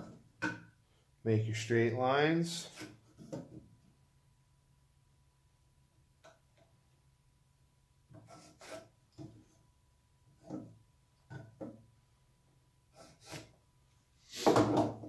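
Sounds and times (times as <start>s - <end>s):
pencil scratching on wood: 8.1s - 8.9s, 12.9s - 13.5s.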